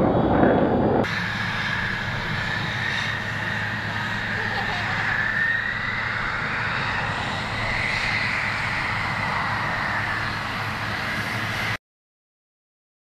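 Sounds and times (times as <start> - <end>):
jet engine roar: 0.0 - 11.8
low steady hum: 0.0 - 11.8.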